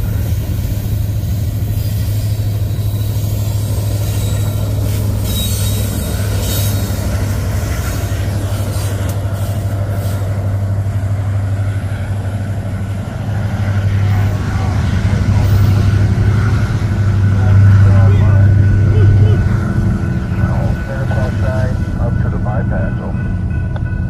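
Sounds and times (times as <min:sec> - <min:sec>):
freight train wheels rumbling: 0:00.0 - 0:24.0.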